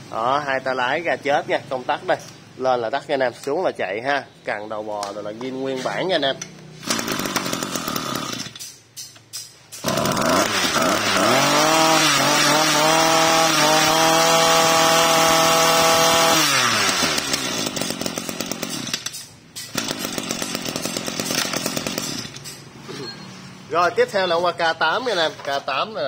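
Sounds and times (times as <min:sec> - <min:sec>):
two-stroke trimmer engine revving: 0:06.8 - 0:08.6, 0:09.8 - 0:19.1, 0:19.7 - 0:22.4.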